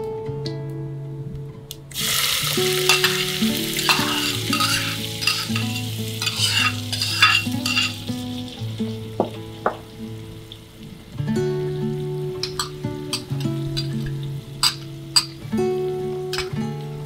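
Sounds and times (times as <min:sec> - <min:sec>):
onion sizzling in hot oil: 0:01.9 - 0:17.0
metal ladle scraping and knocking: 0:03.8 - 0:08.0, 0:14.6 - 0:15.4.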